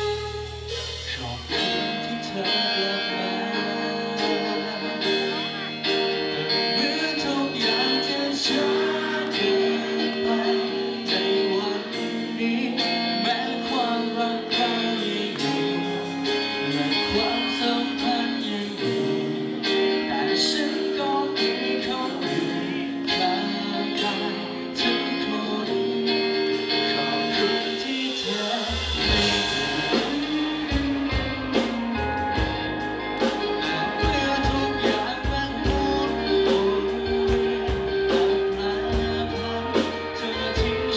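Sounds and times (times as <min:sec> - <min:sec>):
bass line: 0:00.0 - 0:23.2, 0:24.8 - 0:40.9
guitar: 0:00.0 - 0:40.9
man singing pop song: 0:01.0 - 0:32.4, 0:33.2 - 0:40.9
steady beat: 0:27.5 - 0:40.9.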